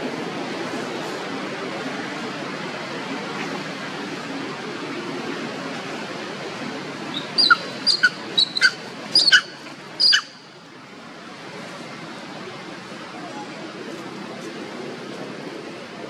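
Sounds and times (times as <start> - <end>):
baby monkey squealing: 7.2 - 10.3.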